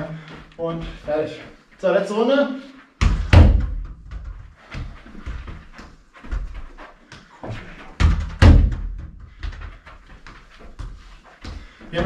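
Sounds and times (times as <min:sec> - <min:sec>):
ball touches and footsteps on carpet: 0:03.0 - 0:12.0.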